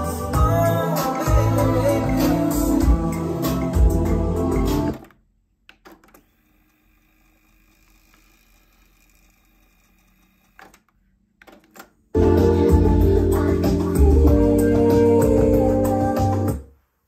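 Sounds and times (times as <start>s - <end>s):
music playing: 0.0s - 5.0s, 12.2s - 16.7s.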